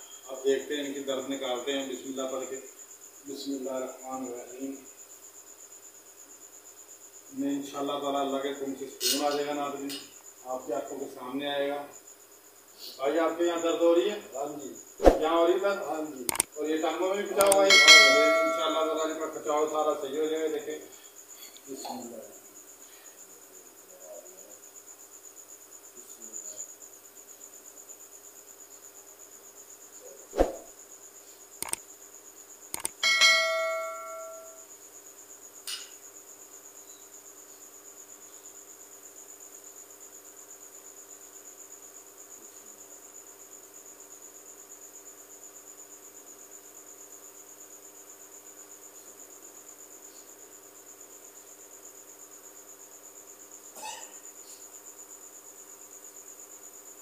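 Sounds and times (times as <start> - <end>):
cricket chirping: 0.0 - 57.0
quick clicks: 16.3 - 16.5, 17.4 - 17.6, 31.6 - 31.8, 32.7 - 33.0
bell-like ding: 17.7 - 18.8, 33.0 - 34.6.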